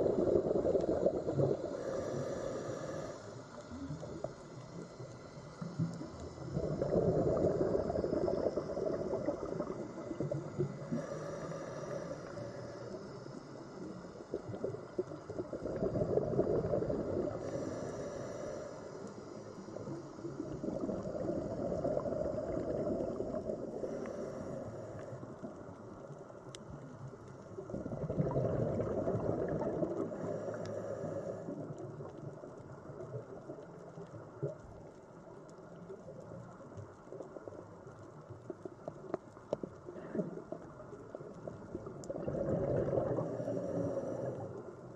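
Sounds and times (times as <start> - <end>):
scuba regulator bubbling exhalations: 0.0 - 3.0, 6.3 - 12.1, 14.3 - 17.8, 20.4 - 24.8, 27.6 - 31.7, 41.6 - 44.6.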